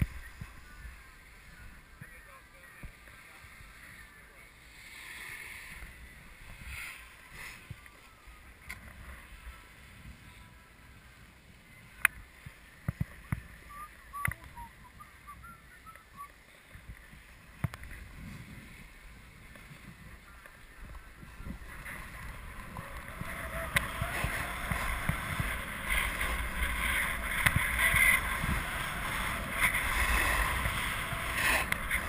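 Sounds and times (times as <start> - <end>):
snow scraping under skis: 4.5 - 7.8, 17.4 - 20.1, 21.3 - 32.0
wind on microphone: 16.7 - 32.0.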